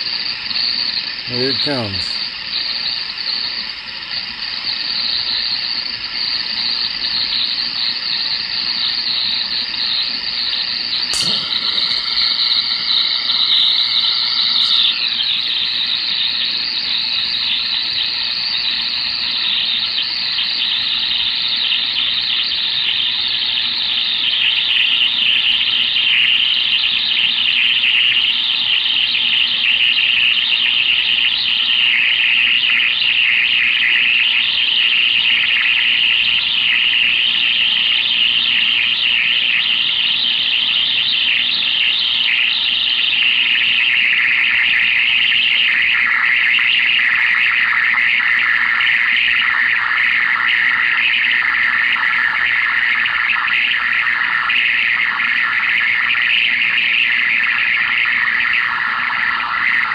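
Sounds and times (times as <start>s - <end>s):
radio high-pitched hissing squeal: 0.0s - 3.2s, 4.5s - 21.0s
faint steady tones: 10.6s - 15.8s
sharp click: 11.0s - 15.0s.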